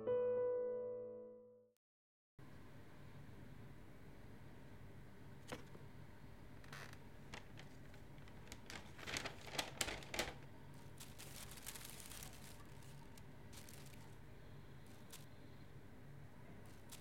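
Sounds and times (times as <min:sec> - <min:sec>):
paper wrapper crinkling: 0:06.7 - 0:14.2, 0:14.8 - 0:15.4, 0:16.7 - 0:17.0.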